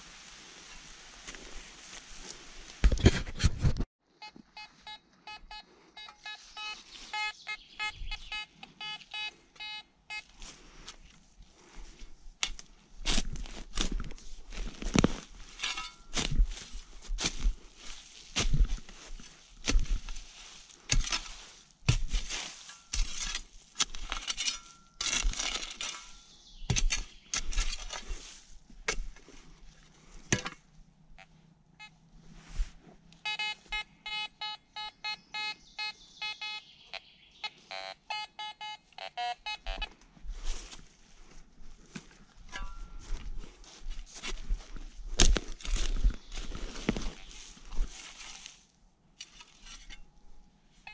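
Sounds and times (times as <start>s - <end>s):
rustling: 0.0s - 3.8s, 10.1s - 30.3s, 39.8s - 50.3s
rapid short electronic beeps: 4.6s - 9.8s.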